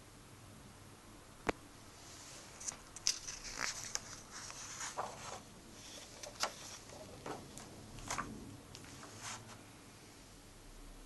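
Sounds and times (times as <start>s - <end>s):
paper rustling and scraping: 2.0s - 9.7s.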